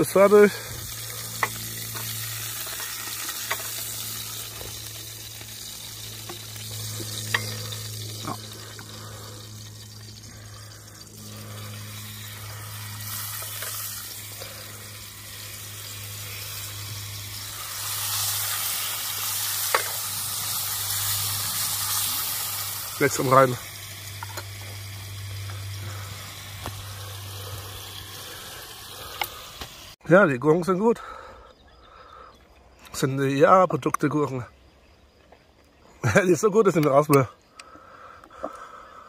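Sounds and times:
food sizzling in a frying pan: 0.0s - 30.0s.

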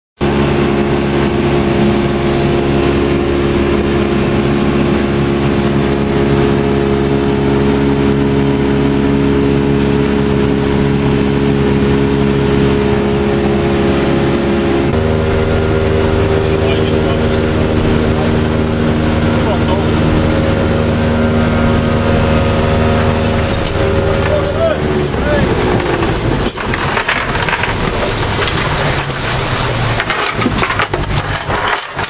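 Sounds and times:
boat engine running: 0.2s - 32.0s
short high beeps: 1.0s - 1.3s, 4.8s - 6.2s, 6.9s - 7.6s.

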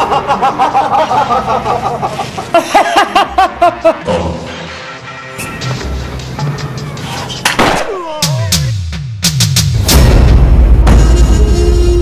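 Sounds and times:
man laughing: 0.0s - 4.4s.

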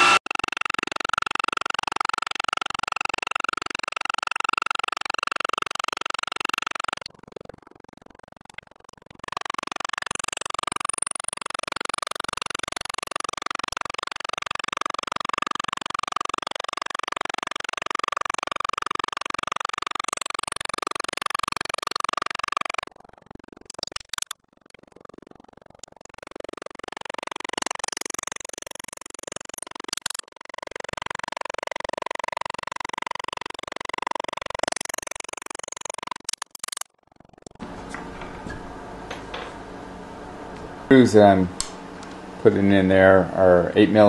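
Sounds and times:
drill bit cutting metal: 0.0s - 0.2s
spindle whining: 0.0s - 0.8s, 32.0s - 44.0s.

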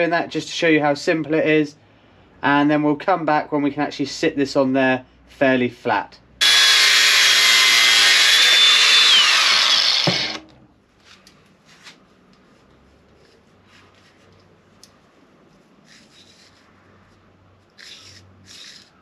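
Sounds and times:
angle grinder cutting metal: 6.4s - 10.5s.

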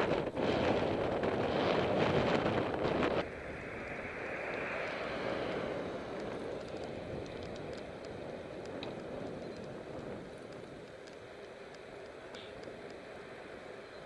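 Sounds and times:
wind rushing over microphone: 0.0s - 13.8s
bicycle tyres on asphalt: 0.0s - 14.0s
faint ticks: 6.1s - 14.0s.

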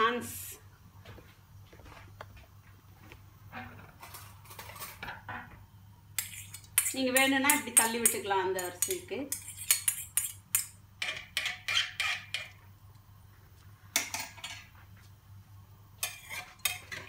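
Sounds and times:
spoon knocking and scraping pot: 6.2s - 12.6s, 16.0s - 17.0s.

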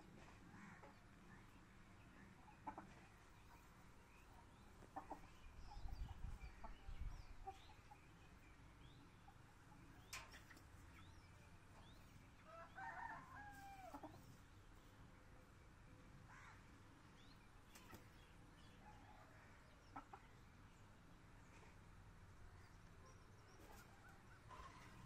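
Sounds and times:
small birds chirping: 0.2s - 25.0s
rooster crowing: 12.5s - 13.9s.

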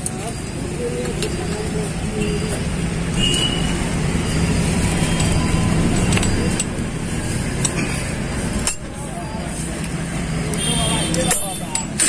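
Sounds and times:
engine running low hum: 0.5s - 10.5s
spanner metal clicks: 5.0s - 6.8s, 8.6s - 8.9s.

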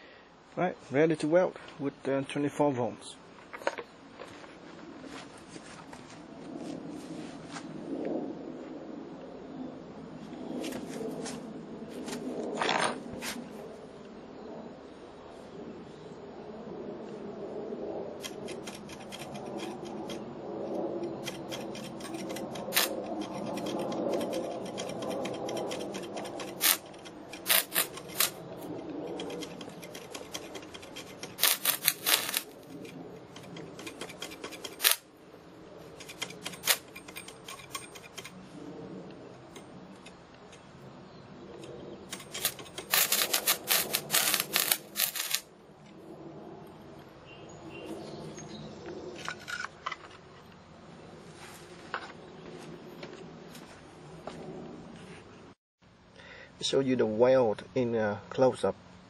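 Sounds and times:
welding arc crackling: 21.2s - 28.4s, 29.1s - 32.7s, 33.3s - 35.0s, 36.0s - 37.0s, 42.1s - 45.5s.

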